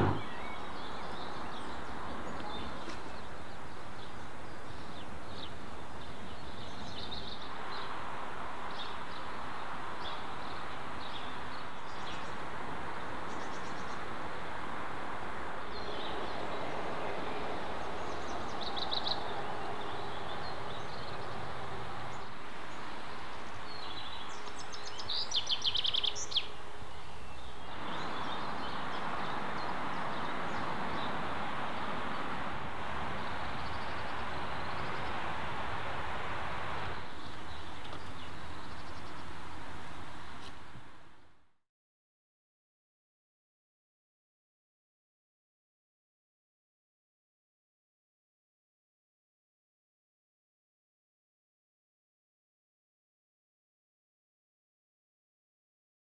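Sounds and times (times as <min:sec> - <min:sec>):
bird trill: 0:00.0 - 0:00.9
bird chirps: 0:00.0 - 0:03.3.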